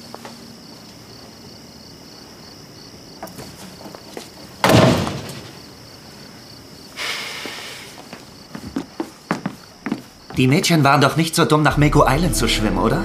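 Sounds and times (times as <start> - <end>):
crickets chirping: 0.0 - 13.0
door banging open: 4.6 - 5.7.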